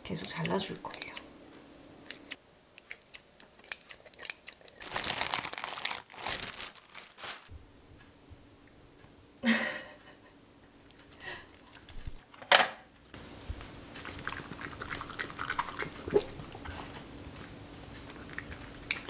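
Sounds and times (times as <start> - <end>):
scissors snipping food in a bowl: 0.1 - 1.3, 2.0 - 4.8
plastic zip bag crinkling: 4.7 - 7.5.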